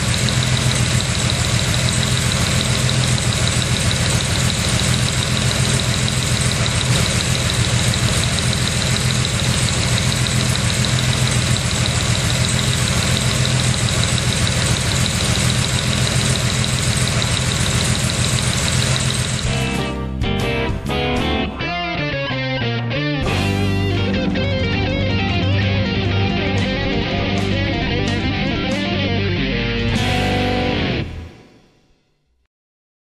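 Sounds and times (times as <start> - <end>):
engine idling: 0.0 - 19.9.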